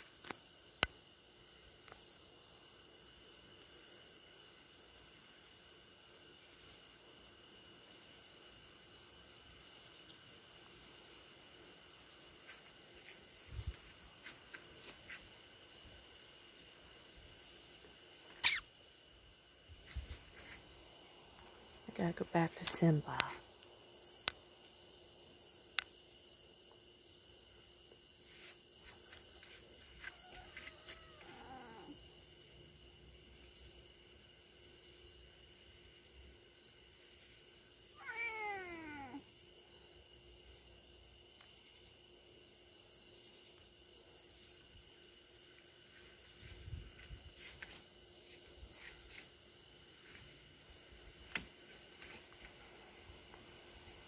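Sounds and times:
crickets chirring: 0.0s - 54.0s
cat meowing: 30.8s - 31.9s, 38.0s - 39.2s.

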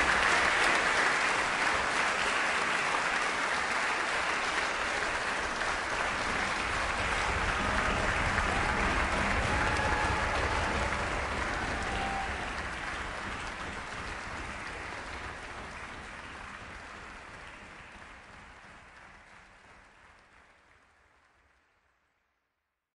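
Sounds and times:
audience applauding: 0.0s - 22.2s.

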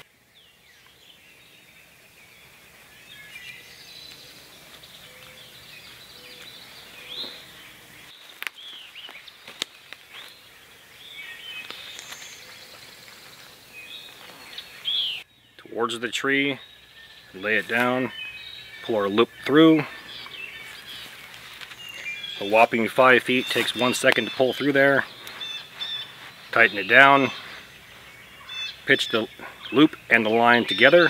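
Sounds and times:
birds chirping and whistling: 0.0s - 31.0s
sharp snaps: 23.5s - 24.3s.

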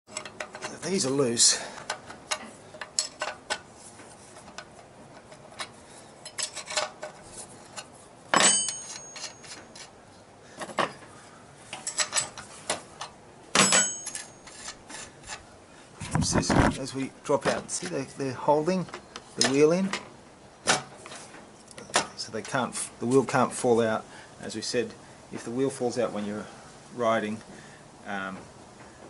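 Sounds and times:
metallic clicks and knocks: 0.1s - 1.2s, 1.8s - 3.7s, 4.4s - 9.9s, 11.7s - 14.8s
ringing metal clanks: 8.3s - 9.8s, 13.6s - 14.6s.

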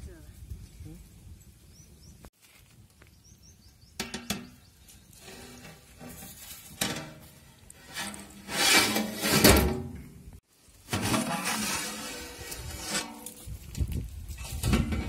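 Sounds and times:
metal pot lid scraping and knocking: 5.2s - 10.0s.

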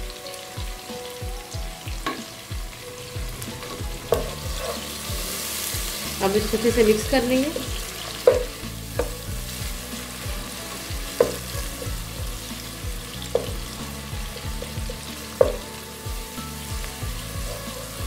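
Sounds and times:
vegetables sizzling in hot oil: 0.0s - 18.0s
spatula knocking against pot: 8.2s - 9.2s, 11.1s - 11.7s, 14.6s - 15.7s.

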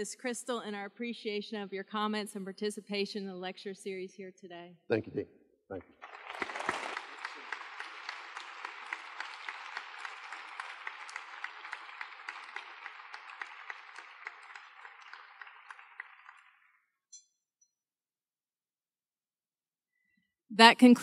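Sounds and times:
audience applauding: 5.8s - 16.8s.

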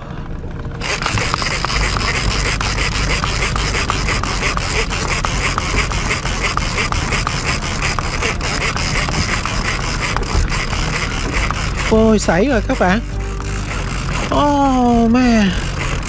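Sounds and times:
fishing reel clicking: 0.8s - 16.0s.

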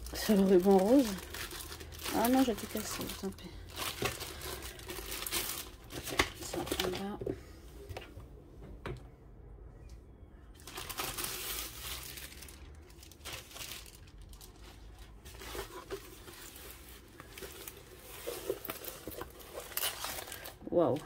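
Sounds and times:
plastic sleeve crinkling: 0.0s - 7.2s, 10.6s - 21.0s.

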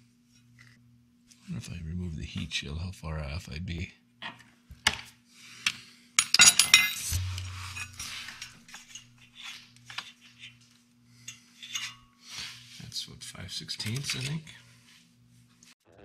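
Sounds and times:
steel tools clinking: 6.2s - 12.2s, 13.8s - 14.6s.

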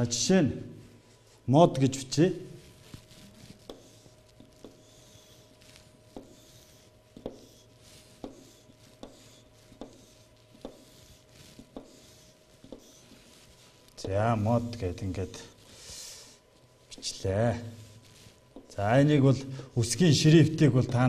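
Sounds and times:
chalk scratching on chalkboard: 2.5s - 14.9s, 16.9s - 19.0s
chalk tapping: 2.6s - 14.3s, 17.8s - 18.8s, 20.7s - 21.0s.

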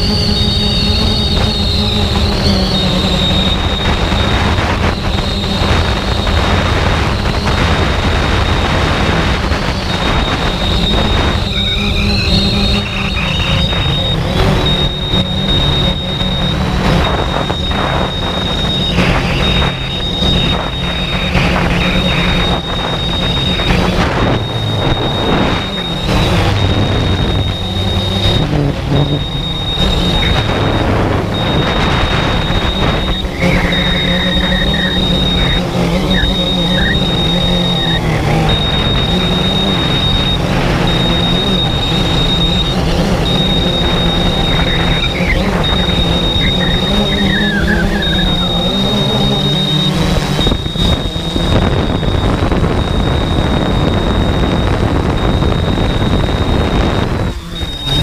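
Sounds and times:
drone motors and propellers: 0.0s - 58.0s
thin high whine: 0.0s - 58.0s
wind noise on microphone: 0.0s - 58.0s.

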